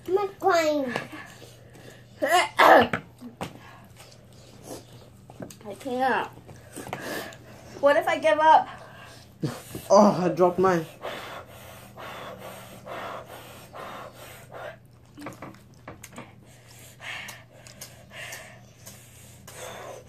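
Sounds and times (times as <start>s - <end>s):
people panting: 6.5s - 7.9s, 10.7s - 14.9s, 16.2s - 20.0s.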